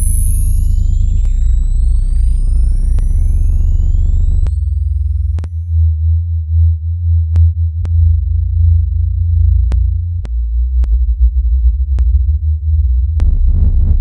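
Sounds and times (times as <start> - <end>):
thin high tone: 0.0 - 5.4
deep sine-wave drone: 0.0 - 14.0.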